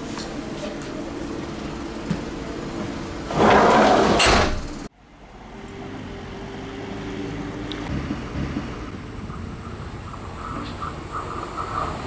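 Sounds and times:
train approaching rumble: 0.0 - 12.0.

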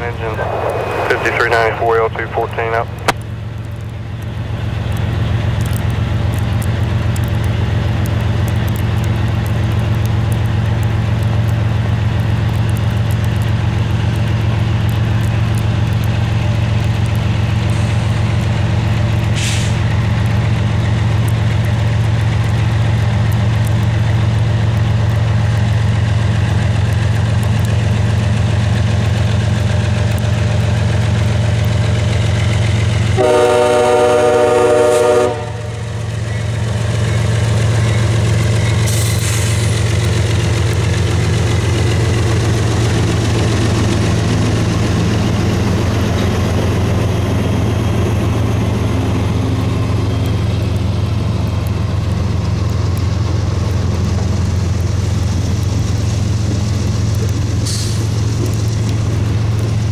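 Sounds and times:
low engine drone: 0.0 - 26.2.

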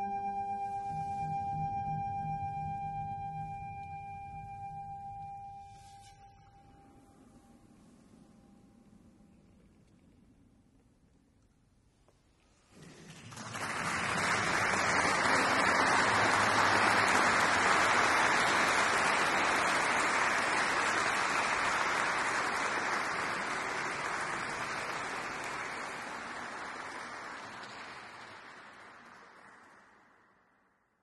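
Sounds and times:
audience applauding in reverberant hall: 12.7 - 30.7.

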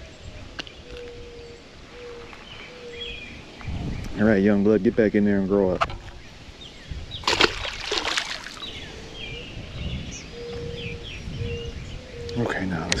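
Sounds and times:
bird chirps: 0.1 - 4.2, 8.4 - 13.0
fish splashing into water: 7.2 - 8.7.

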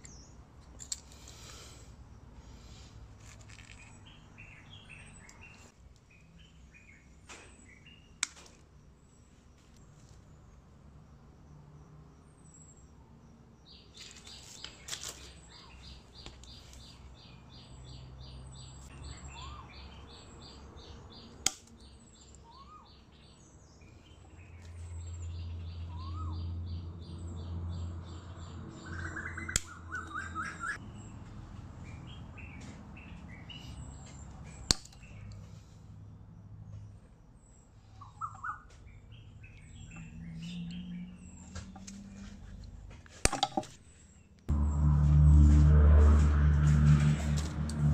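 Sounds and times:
cutters snipping cable: 34.6 - 35.1
birds chirping: 36.7 - 43.0.

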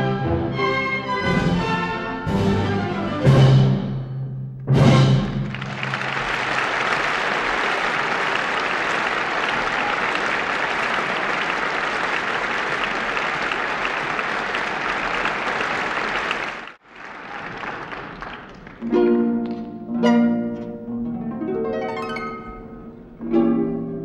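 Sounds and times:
audience applauding: 5.2 - 19.2.

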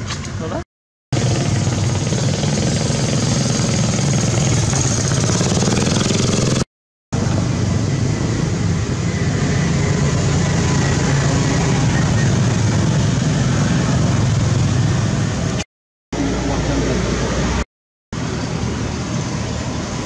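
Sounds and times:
engine-like drone with hiss: 7.2 - 15.6, 16.2 - 17.6, 18.2 - 20.0.

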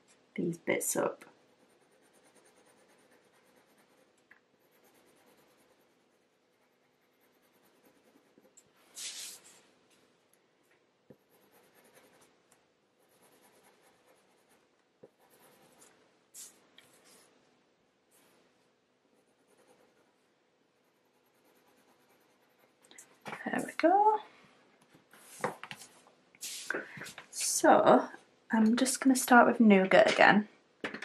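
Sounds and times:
coloured pencil scratching on paper: 1.4 - 9.4, 11.1 - 12.4, 13.0 - 17.3, 19.2 - 23.8.

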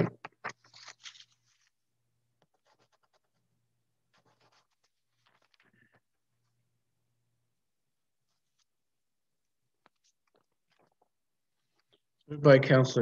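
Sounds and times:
faint scratching and rustling: 2.4 - 6.6, 8.2 - 8.8.

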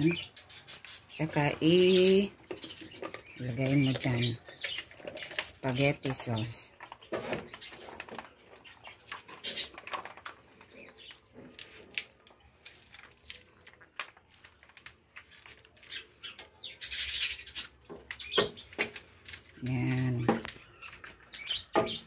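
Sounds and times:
plastic pouch crinkling: 6.9 - 16.4.

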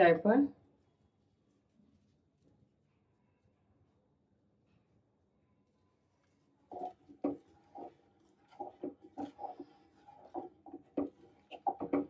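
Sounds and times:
wooden spatula scraping metal pot: 6.7 - 12.0.

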